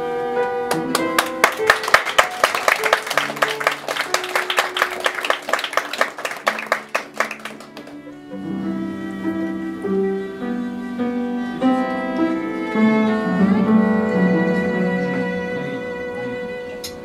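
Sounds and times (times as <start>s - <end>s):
soft piano notes: 0.0s - 17.0s
violin playing: 0.0s - 17.0s
audience applause: 0.7s - 8.2s.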